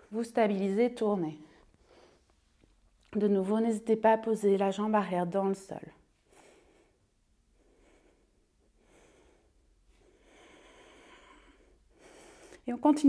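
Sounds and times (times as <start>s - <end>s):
woman breathing softly: 6.1s - 12.7s.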